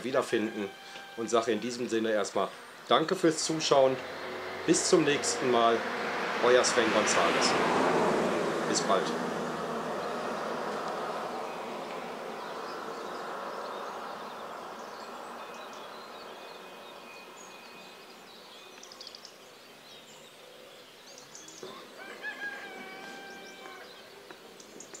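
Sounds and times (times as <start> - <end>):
rooster crowing: 0.0 - 1.8, 21.6 - 24.1
small birds chirping: 0.0 - 7.4, 8.6 - 25.0.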